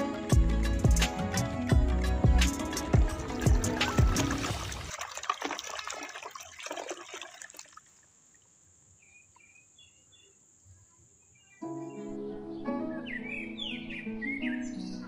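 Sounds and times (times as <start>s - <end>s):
hand splashing in soapy water: 3.8s - 7.8s.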